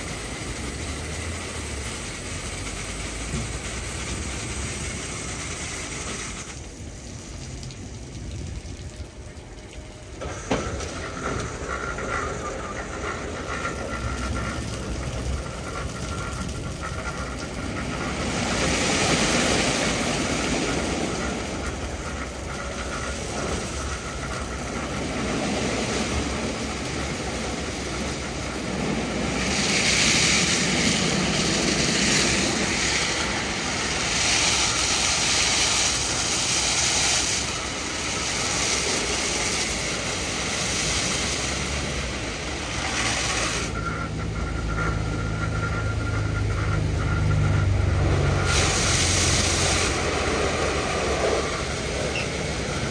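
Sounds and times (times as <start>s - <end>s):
car wash brushes spinning: 0.0s - 7.1s, 10.1s - 52.9s
loud hiss: 0.0s - 7.4s, 10.0s - 45.4s, 47.9s - 52.9s
low motor hum: 43.7s - 52.9s.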